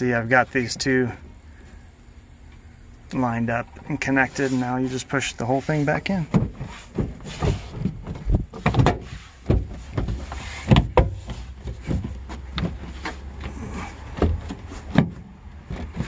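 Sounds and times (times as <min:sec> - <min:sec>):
plastic panel rubbing: 0:03.8 - 0:16.0.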